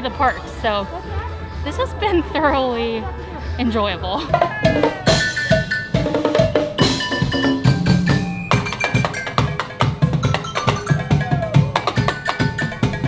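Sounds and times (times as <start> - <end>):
percussion music: 4.2 - 13.0
drum hits: 4.3 - 13.0
mallet tones: 4.3 - 13.0.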